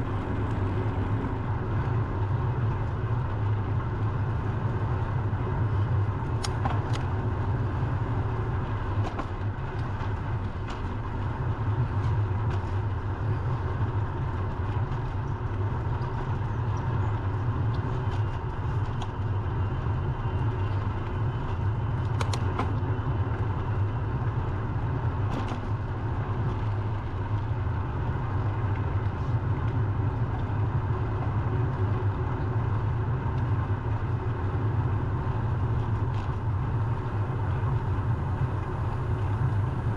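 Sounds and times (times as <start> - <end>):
wind on microphone: 0.0 - 6.4
bicycle road noise: 0.0 - 39.9.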